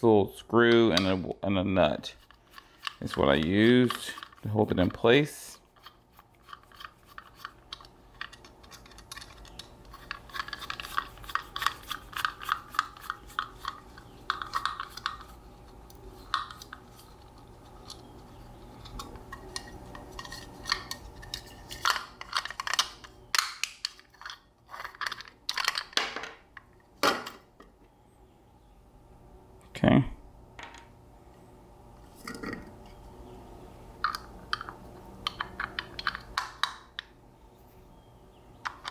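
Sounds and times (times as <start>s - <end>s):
small metal parts clicking: 5.8s - 15.3s.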